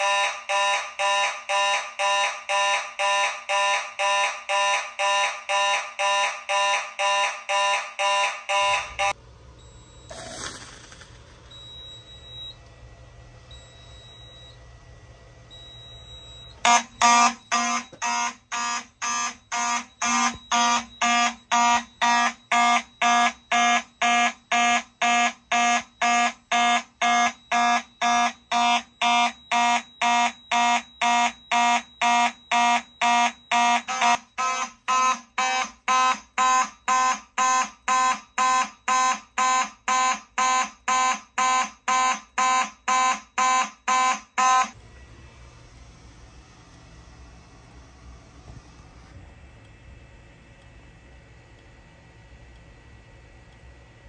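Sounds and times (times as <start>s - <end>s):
fire alarm horns pulsing: 0.0s - 10.3s, 15.5s - 44.8s.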